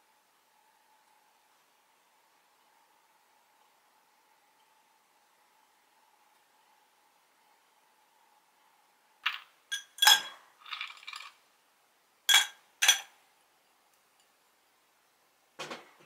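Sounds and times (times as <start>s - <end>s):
ice cubes clinking in a glass: 9.3s - 11.4s, 12.3s - 13.1s
ice settling clatter: 10.0s - 11.4s.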